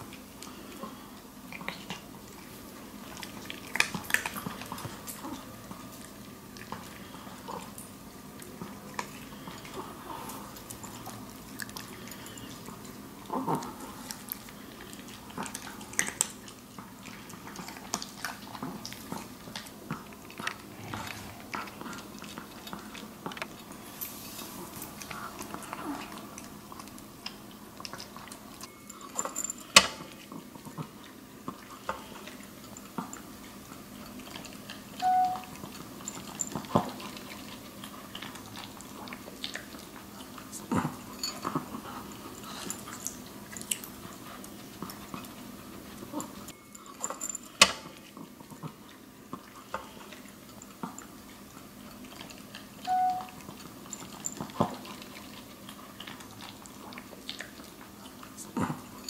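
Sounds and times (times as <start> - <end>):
dogs crunching kibble: 0.0 - 59.0
kibble clinking against bowls: 46.2 - 48.1.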